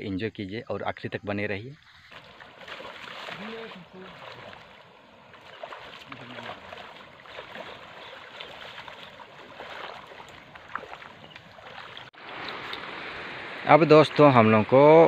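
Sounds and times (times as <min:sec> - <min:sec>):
people wading through water: 0:02.0 - 0:13.0
shallow river water rushing: 0:02.1 - 0:15.0.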